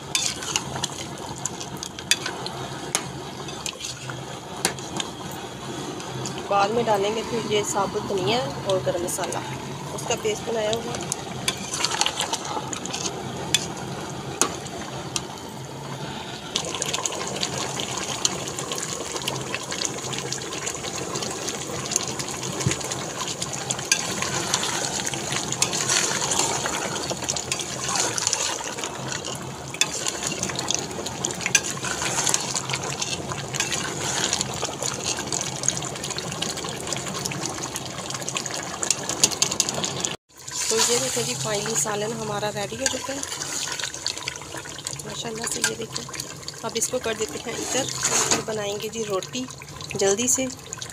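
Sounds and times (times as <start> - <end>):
metal spoon scraping a pot: 0.0 - 5.1, 11.4 - 13.8, 23.8 - 35.5, 47.3 - 48.6
curry bubbling in a pot: 0.0 - 50.9.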